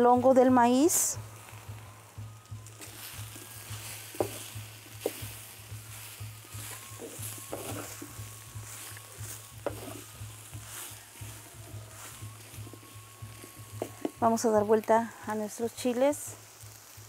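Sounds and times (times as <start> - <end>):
light sizzle: 0.0 - 17.0
wooden spoon scraping clay griddle: 3.7 - 14.3
spoon knocking on griddle: 4.1 - 5.4, 6.6 - 8.2, 9.2 - 10.0, 13.7 - 14.2.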